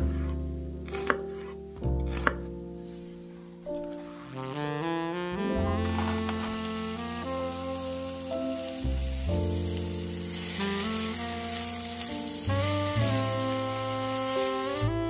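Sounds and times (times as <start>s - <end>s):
background music with saxophone melody: 2.2s - 15.0s
onions sizzling in a frying pan: 5.9s - 14.9s.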